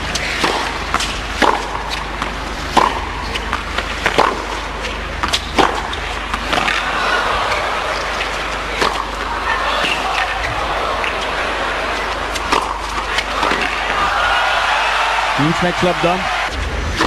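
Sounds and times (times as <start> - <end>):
racket striking tennis ball: 0.1 - 6.8, 8.7 - 10.3, 12.3 - 14.0
murmur of crowd: 6.1 - 17.0.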